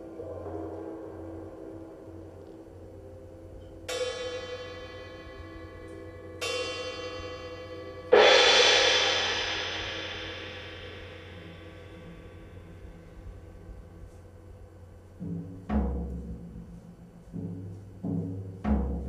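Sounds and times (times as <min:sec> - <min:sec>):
metal percussion ringing strokes: 0:03.6 - 0:18.2.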